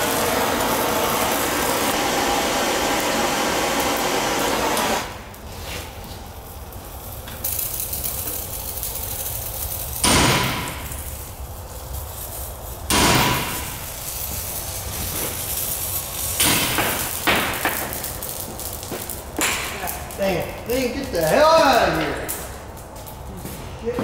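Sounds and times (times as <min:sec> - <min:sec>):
gas torch hissing: 0:00.0 - 0:23.9
hammer striking steel: 0:12.9 - 0:13.8, 0:16.4 - 0:17.9.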